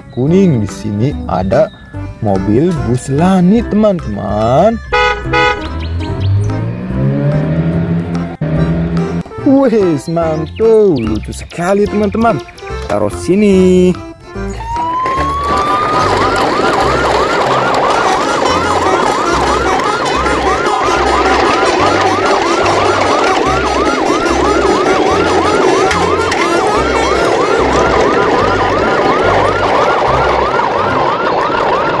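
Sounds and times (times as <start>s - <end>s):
siren in fast yelp mode: 3.0s - 6.0s, 14.5s - 32.0s
low pulsing bass beat: 4.4s - 9.4s.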